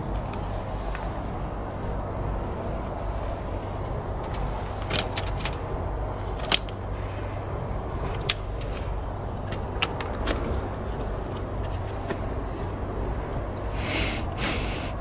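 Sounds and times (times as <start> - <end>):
steady low rumble: 0.0 - 15.0
sharp clicks and knocks: 3.8 - 5.7, 6.3 - 12.3.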